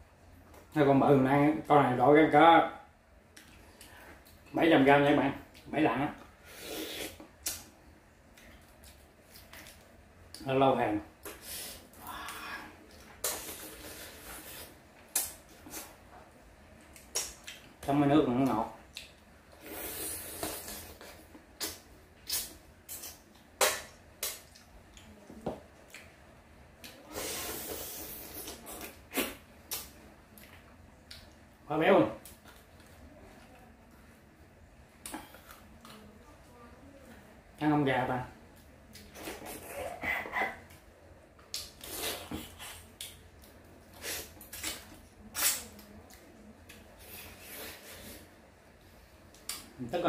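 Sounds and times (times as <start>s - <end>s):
mouth smacking and sucking: 6.5s - 7.7s, 11.2s - 16.0s, 19.6s - 24.7s, 27.0s - 29.9s, 41.5s - 43.2s, 43.9s - 45.9s.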